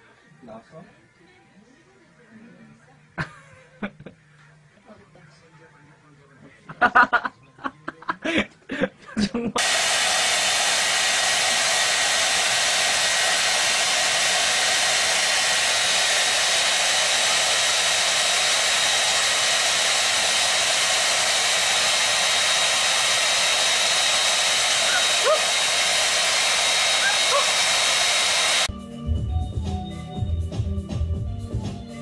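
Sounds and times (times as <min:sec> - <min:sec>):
hair dryer blowing: 0:09.6 - 0:28.7
high motor whine: 0:09.6 - 0:28.7.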